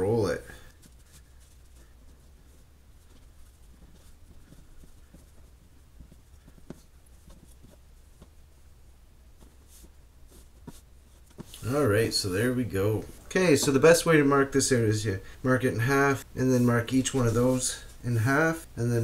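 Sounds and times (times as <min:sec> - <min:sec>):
hands rolling dough on board: 0:00.0 - 0:14.0
steady low hum: 0:00.0 - 0:19.0.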